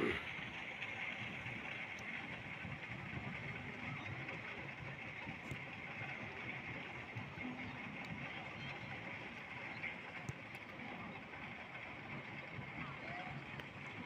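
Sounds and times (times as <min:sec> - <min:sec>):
even hiss: 0:00.0 - 0:00.3.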